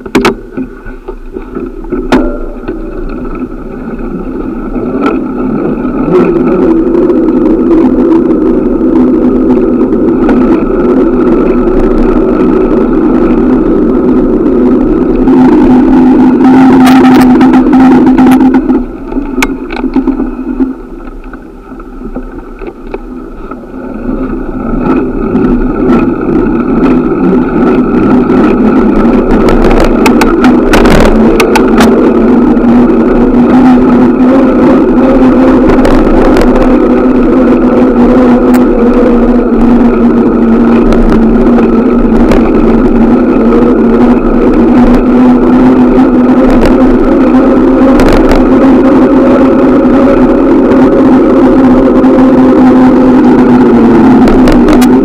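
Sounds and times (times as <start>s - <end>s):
sharp clicks and knocks: 0.0s - 4.1s, 18.2s - 23.6s
bicycle road rumble: 0.0s - 55.0s
wind rushing over microphone: 0.0s - 55.0s.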